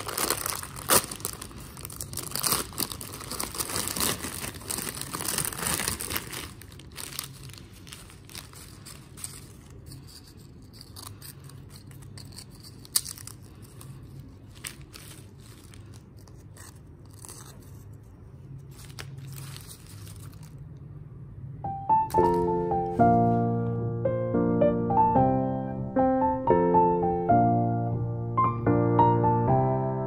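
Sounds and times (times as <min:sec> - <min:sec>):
chip bag crinkling: 0:00.0 - 0:18.0, 0:18.6 - 0:20.6
foil and chips rustling: 0:00.0 - 0:18.0, 0:18.6 - 0:20.6.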